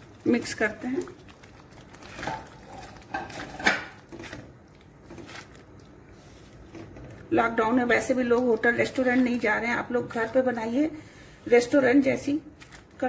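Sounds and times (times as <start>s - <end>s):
spoon stirring thick curry: 0.0s - 7.3s.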